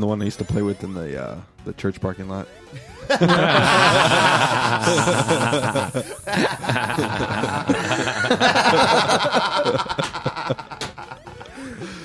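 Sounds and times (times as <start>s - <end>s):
men laughing: 2.8s - 12.0s.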